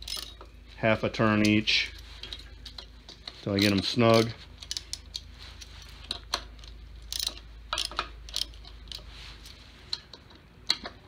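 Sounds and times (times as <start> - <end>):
hex key clicking on bolts: 6.1 - 9.0.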